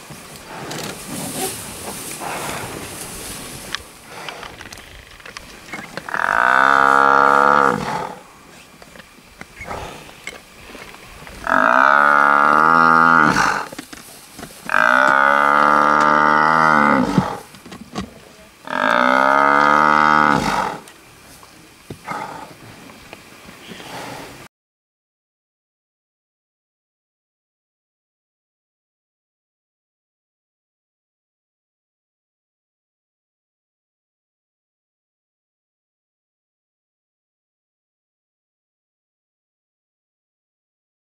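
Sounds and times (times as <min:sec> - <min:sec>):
buffalo bellowing: 0:05.8 - 0:08.3, 0:11.4 - 0:13.7, 0:14.7 - 0:17.5, 0:18.6 - 0:20.9.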